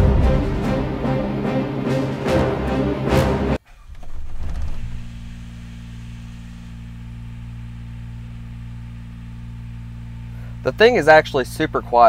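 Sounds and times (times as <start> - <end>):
small diesel engine humming: 3.6 - 12.0.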